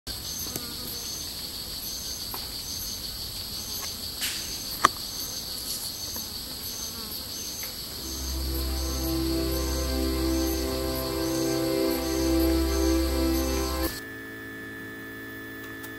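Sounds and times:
music: 8.0s - 14.0s.

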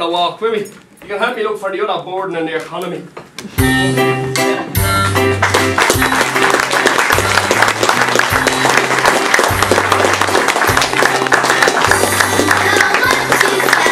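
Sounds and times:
recorded music with bass line: 3.6s - 11.3s
audience applauding: 5.3s - 13.9s.

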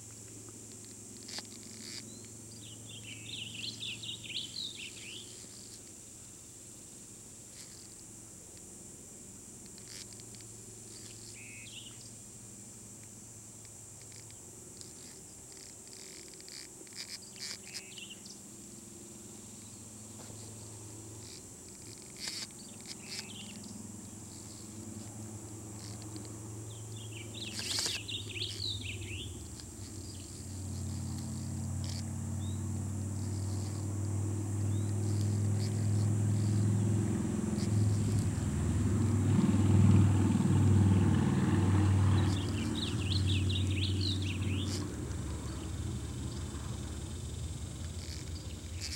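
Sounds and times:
songbirds chirping: 0.2s - 7.0s, 10.9s - 12.2s, 16.5s - 48.9s
low engine hum: 16.8s - 48.9s.

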